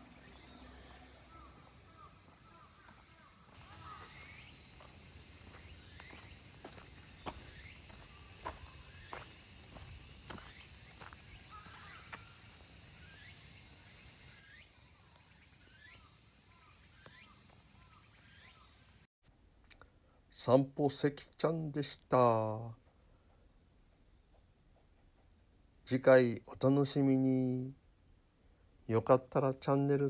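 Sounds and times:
high-pitched insect chorus: 0:00.0 - 0:19.1
small birds chirping: 0:00.0 - 0:19.1
footsteps on paved path: 0:02.2 - 0:12.7.

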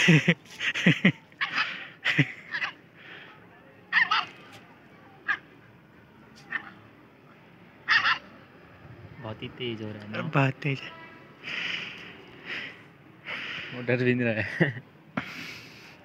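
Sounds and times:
puppies yapping and barking: 0:07.9 - 0:08.3.

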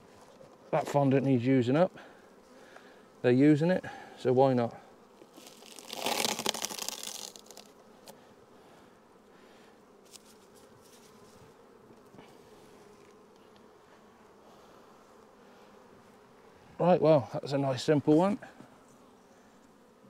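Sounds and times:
bees humming: 0:00.0 - 0:20.0
plastic wrapper rustling: 0:05.3 - 0:07.7.

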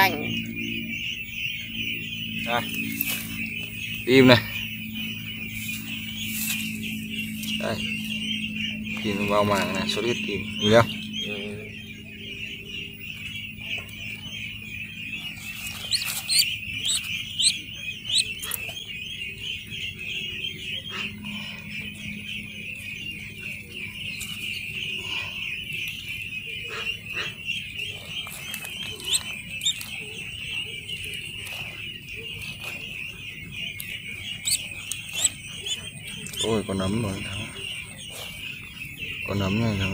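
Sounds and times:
ducklings peeping: 0:00.0 - 0:39.9
single duckling calls: 0:15.2 - 0:18.8, 0:26.7 - 0:30.6, 0:33.7 - 0:36.7.

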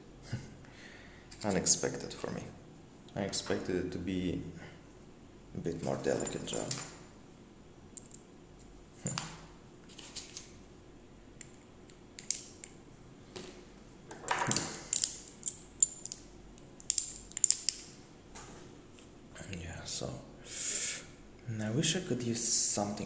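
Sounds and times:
metal tools clinking: 0:05.8 - 0:07.0, 0:14.3 - 0:17.8.

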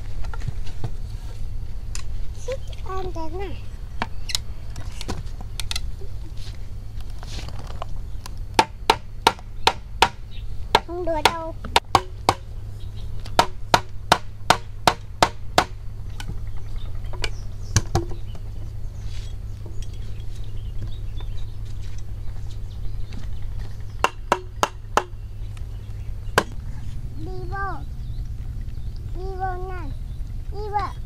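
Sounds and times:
steady low hum: 0:00.0 - 0:31.0
hammer striking bamboo: 0:08.5 - 0:12.5, 0:13.3 - 0:16.4, 0:24.0 - 0:25.2.

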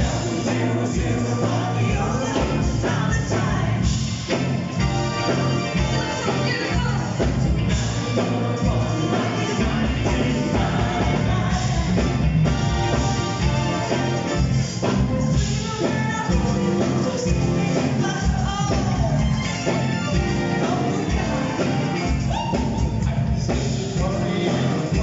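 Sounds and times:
live band with electric guitars: 0:00.0 - 0:25.0
man singing: 0:22.3 - 0:25.0.

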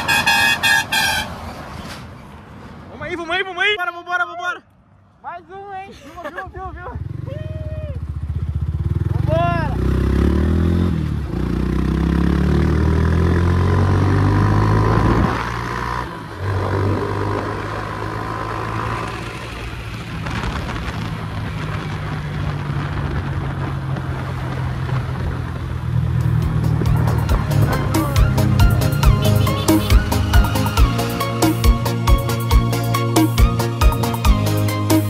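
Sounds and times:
wind and road noise: 0:00.0 - 0:35.0
motorcycle engine running: 0:06.7 - 0:13.0, 0:16.6 - 0:32.2.

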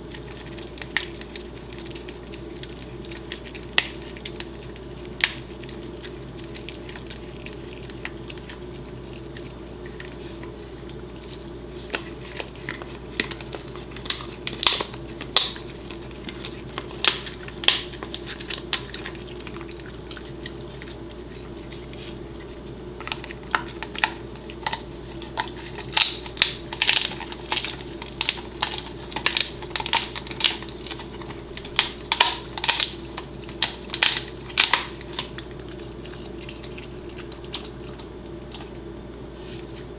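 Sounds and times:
dog gnawing hard chew: 0:00.0 - 0:39.9.

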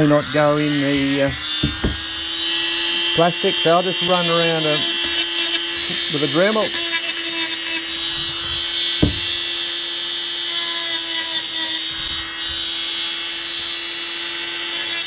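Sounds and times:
rotary tool grinding whine: 0:00.0 - 0:15.0
brief knock: 0:01.3 - 0:02.1, 0:09.0 - 0:09.4.

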